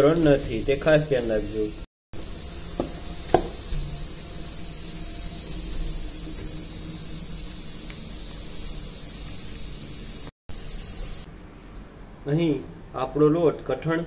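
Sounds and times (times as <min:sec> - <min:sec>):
steady hiss: 0:00.0 - 0:11.3
dough knocking against steel bowl: 0:02.8 - 0:03.6.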